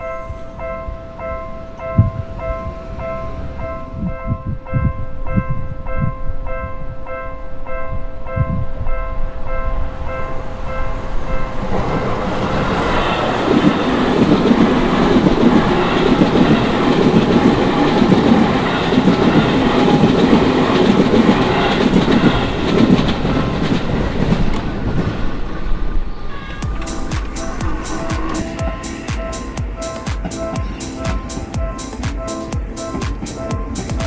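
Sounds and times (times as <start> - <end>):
level crossing warning bell: 0.0 - 11.8, 12.8 - 22.8, 26.4 - 34.0
electric train passing: 0.0 - 34.0
train wheels clattering on rails: 11.0 - 25.6, 26.5 - 34.0.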